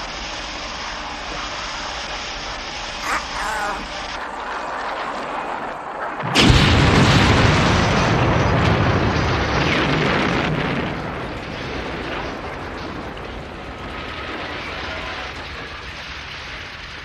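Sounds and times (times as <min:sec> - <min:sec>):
flying debris: 0:03.0 - 0:16.0
building explosion blast: 0:06.2 - 0:13.1.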